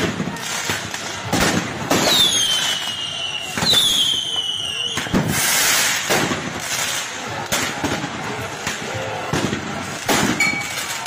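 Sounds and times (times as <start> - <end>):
firework bangs: 0.0 - 11.0
firework hissing burst: 5.0 - 6.6.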